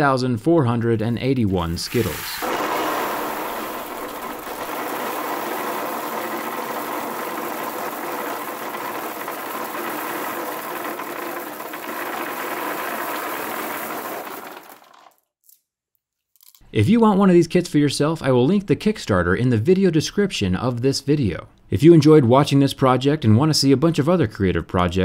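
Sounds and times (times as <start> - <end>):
candies rattling off wooden shelf: 1.9 - 15.2.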